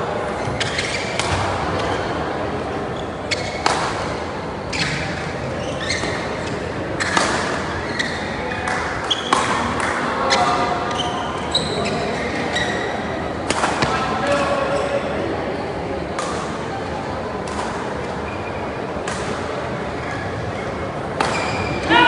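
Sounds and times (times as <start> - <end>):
murmur of venue: 0.0 - 22.0
shoes squeaking on court floor: 0.3 - 2.2, 2.8 - 3.8, 4.6 - 9.6, 10.2 - 13.2, 19.9 - 21.9
rackets striking shuttlecock: 8.5 - 10.6, 13.4 - 14.0, 21.2 - 21.6.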